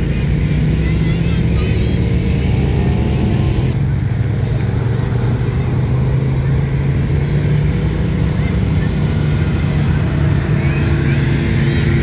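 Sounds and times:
utility vehicle engines droning: 0.0s - 12.0s.

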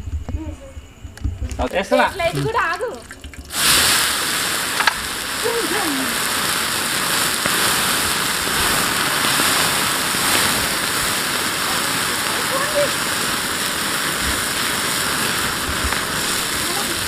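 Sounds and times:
flames rushing: 1.1s - 17.0s
loud rushing hiss: 3.5s - 17.0s
sharp crack: 3.5s - 17.0s.

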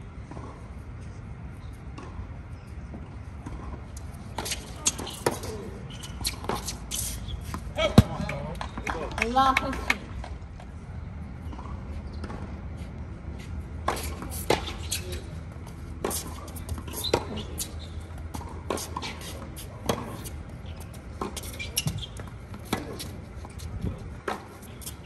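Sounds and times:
tennis ball bouncing on court: 1.9s - 2.2s, 2.9s - 10.7s, 11.4s - 12.6s, 13.7s - 25.0s
tennis ball hitting rackets: 3.4s - 10.4s, 13.7s - 25.0s.

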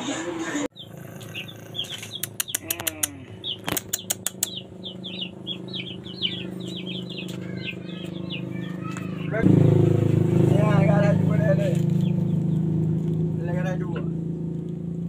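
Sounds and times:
small birds chirping: 0.6s - 15.0s
steady low hum: 0.7s - 8.6s, 9.2s - 15.0s
sharp clicks: 1.9s - 5.0s.

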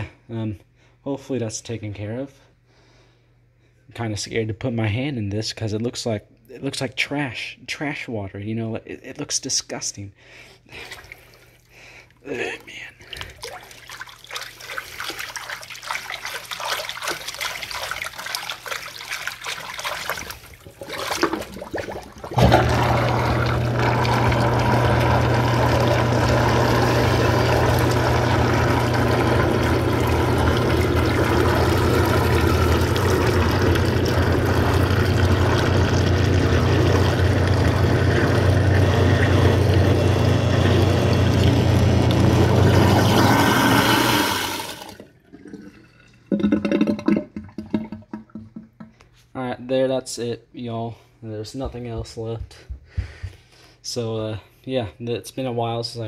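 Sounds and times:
hand splashing in water: 13.1s - 22.6s
water rushing down drain: 13.1s - 48.6s
garbage disposal motor hum: 20.4s - 48.9s.

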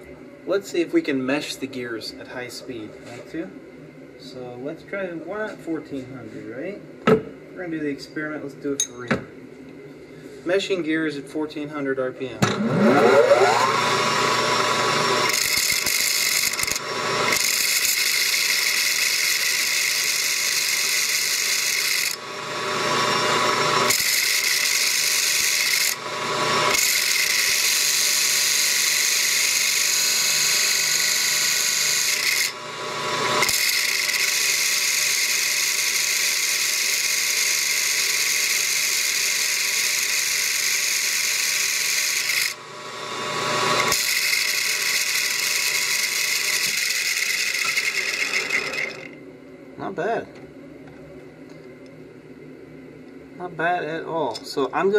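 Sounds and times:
plastic gears whirring: 43.8s - 49.1s.

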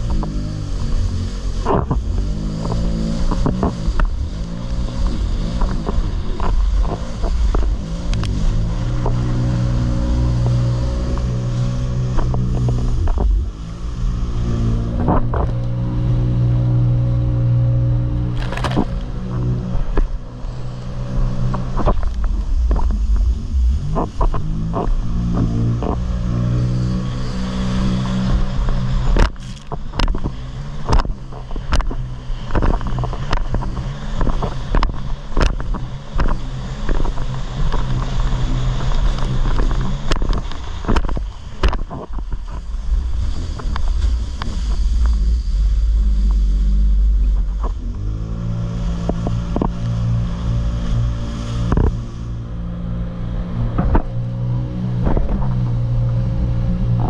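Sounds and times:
jet ski engine running: 0.0s - 57.0s
hull slapping over waves: 18.1s - 20.4s, 27.9s - 47.9s.

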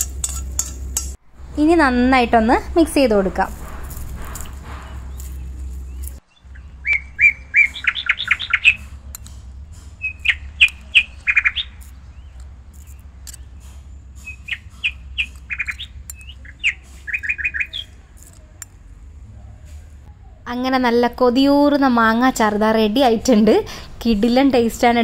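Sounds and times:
low steady hum: 0.0s - 25.0s
small bird chirping: 3.9s - 18.7s.

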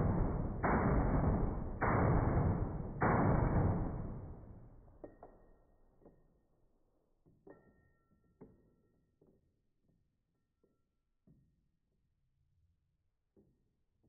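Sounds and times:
rifle shot echo: 0.0s - 4.8s.

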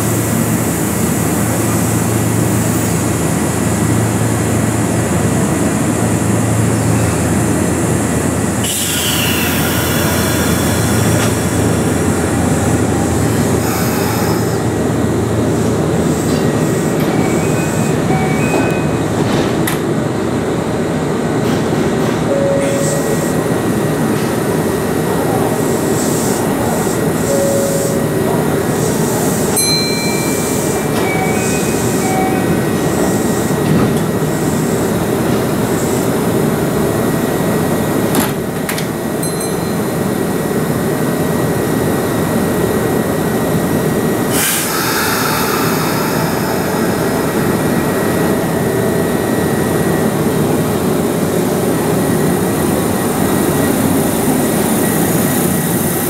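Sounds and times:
electric train rumble and hum: 0.0s - 56.0s
short high electronic tones: 22.3s - 23.7s, 27.2s - 28.6s, 29.6s - 32.5s.

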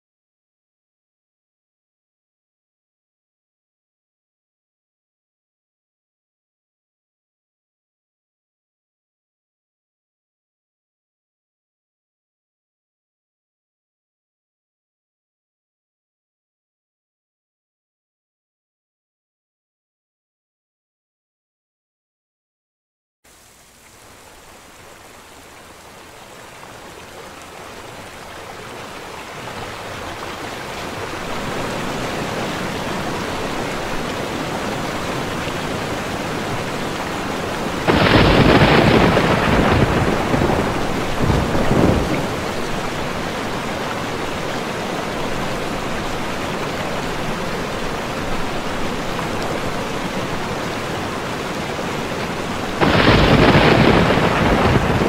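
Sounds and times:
steady rain: 23.3s - 55.0s
thunder: 37.9s - 42.4s, 52.8s - 55.0s.

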